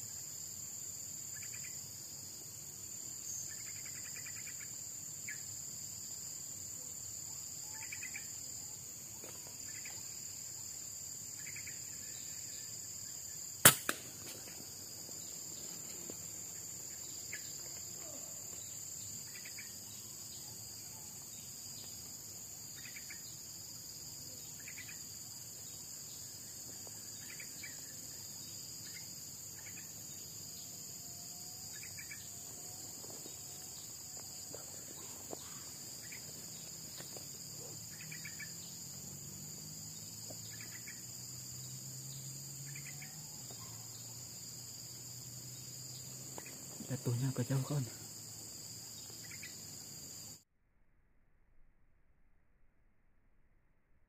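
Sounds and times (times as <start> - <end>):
insects droning: 0.0 - 50.5
air rifle shot: 13.6 - 14.6.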